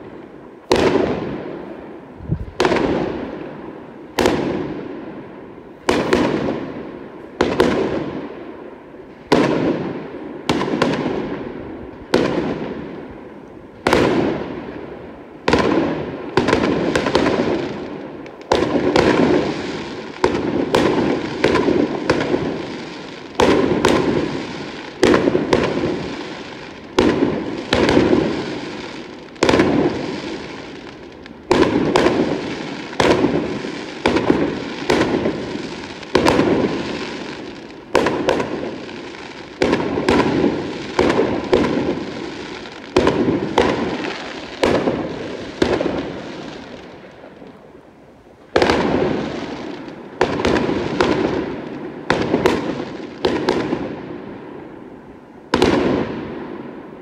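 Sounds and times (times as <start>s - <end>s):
fireworks bangs: 0.0s - 57.0s
fireworks crackle: 0.0s - 57.0s.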